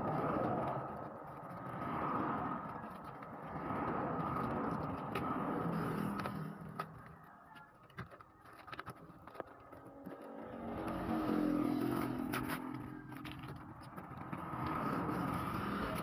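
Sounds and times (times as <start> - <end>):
vehicle engine running: 9.7 - 16.0.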